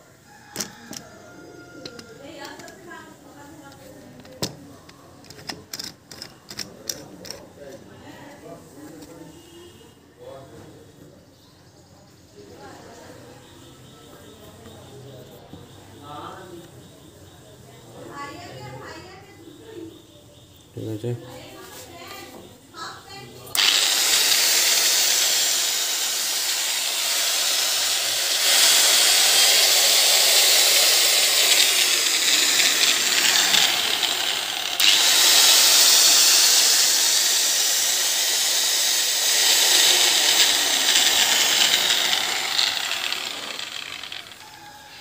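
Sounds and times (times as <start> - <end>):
angle grinder running: 0.6 - 1.0, 1.8 - 4.6, 23.5 - 45.0.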